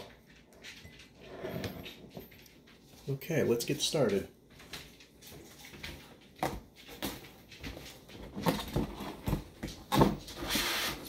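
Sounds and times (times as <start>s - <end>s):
rustling scrape: 0.0s - 3.2s, 10.2s - 11.0s.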